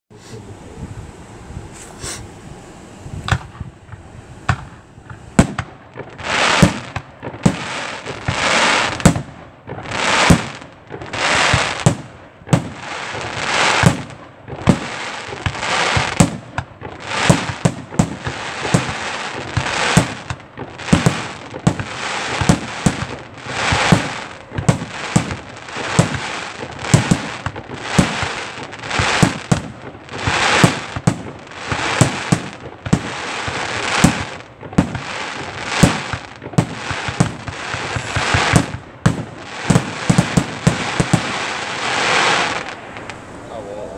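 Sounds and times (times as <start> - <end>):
firework launch thumps: 3.2 - 12.7, 35.8 - 41.4
firework shells bursting: 3.2 - 43.2.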